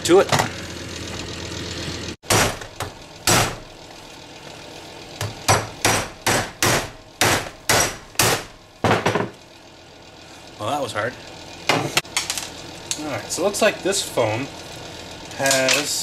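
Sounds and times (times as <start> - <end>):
hammer striking plastic: 5.2 - 9.3.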